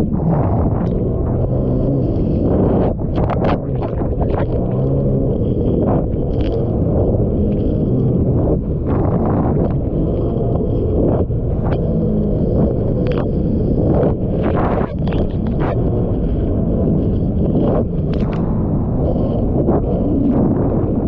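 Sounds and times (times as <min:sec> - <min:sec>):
wind buffeting microphone: 0:00.0 - 0:21.0
watercraft engine humming: 0:15.4 - 0:20.9.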